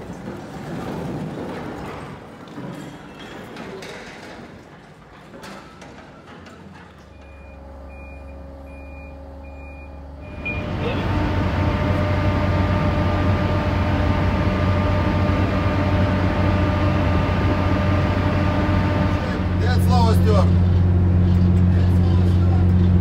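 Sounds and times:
ship engine drone: 7.1s - 23.0s
high electronic warning beep: 7.2s - 11.2s.

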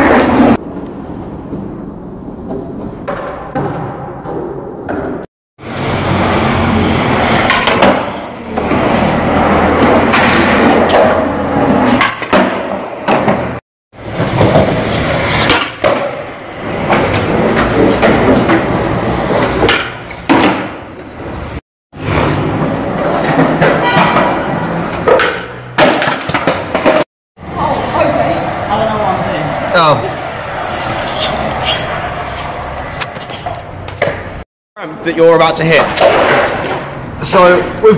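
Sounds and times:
skateboard wheels rolling on concrete: 0.0s - 34.4s, 35.0s - 37.9s
skateboard clacks popping and landing: 9.8s - 16.2s, 16.8s - 21.2s, 22.6s - 27.0s.

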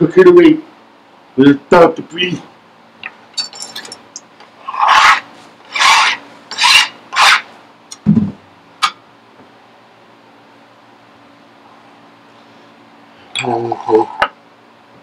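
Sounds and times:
rasping scraping by hand: 4.6s - 7.5s
low thump: 8.0s - 8.4s.

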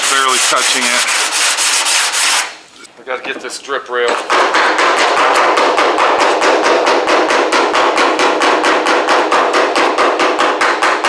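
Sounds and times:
hammer beating metal: 4.1s - 11.0s.

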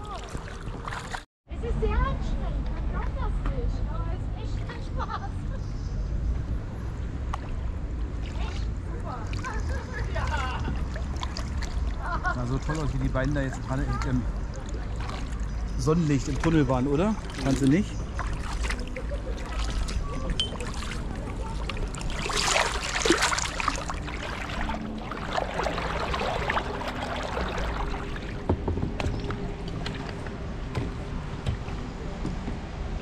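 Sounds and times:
paddle strokes splashing water: 0.0s - 1.2s, 7.3s - 32.4s.

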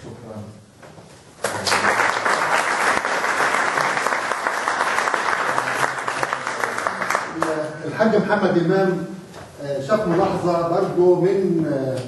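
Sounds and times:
audience applauding: 1.4s - 7.7s.

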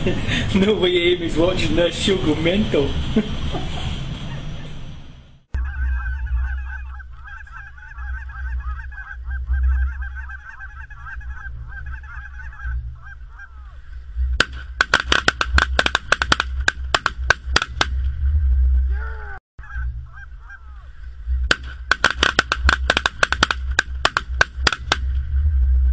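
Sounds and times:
geese calling and honking: 5.5s - 25.9s
shotgun fire: 14.4s - 18.0s, 21.5s - 25.1s.

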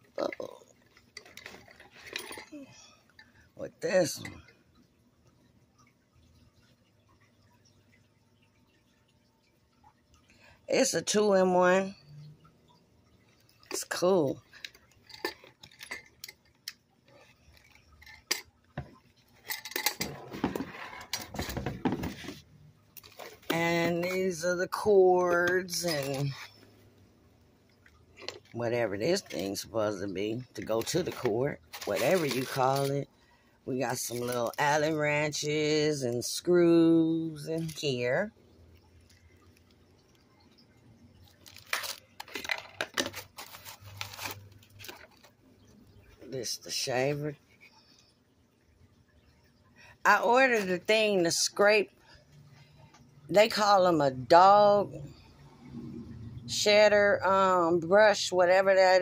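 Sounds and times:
plastic bag crinkling: 30.6s - 32.8s, 41.2s - 45.3s.

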